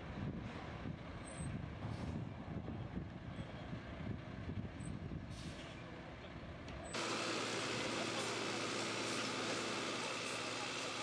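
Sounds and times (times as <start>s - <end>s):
diesel truck engine rumbling: 2.9s - 11.0s.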